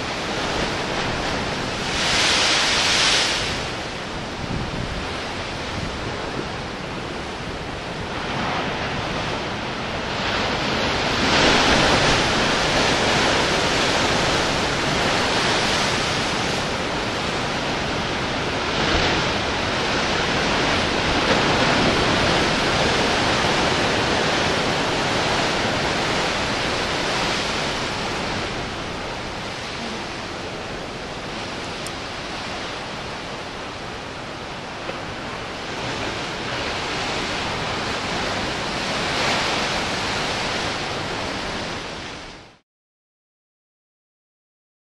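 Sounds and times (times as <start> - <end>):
ocean surf breaking: 0.0 - 42.4.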